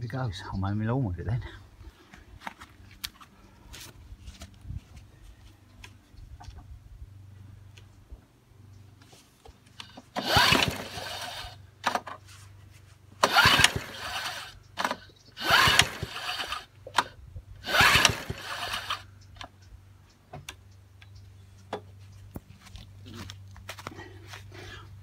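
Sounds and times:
lawnmower recoil starter cranking: 9.8 - 12.2, 13.2 - 19.1.

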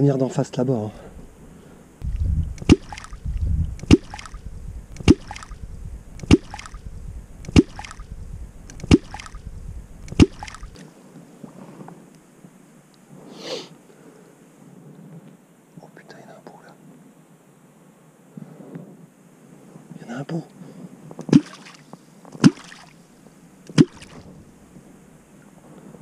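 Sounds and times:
catfish clonk striking water: 2.6 - 3.2, 3.8 - 4.4, 5.0 - 5.6, 6.2 - 6.8, 7.5 - 8.1, 8.8 - 9.4.

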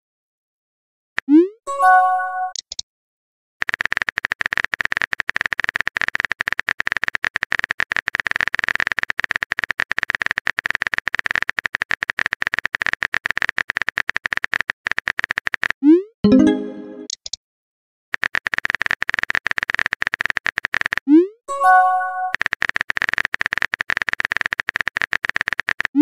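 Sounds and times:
message notification chime: 1.7 - 2.5, 16.2 - 17.1
rapid typing clicks: 3.6 - 15.8, 18.2 - 21.1, 22.2 - 26.0.

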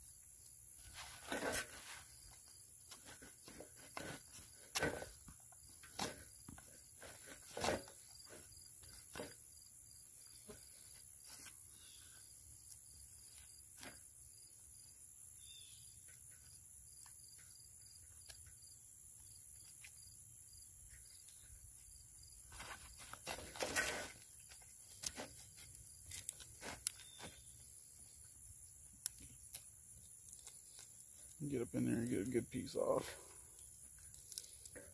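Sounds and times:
knife scraping wood: 0.8 - 2.3, 5.9 - 9.4, 22.5 - 27.5.

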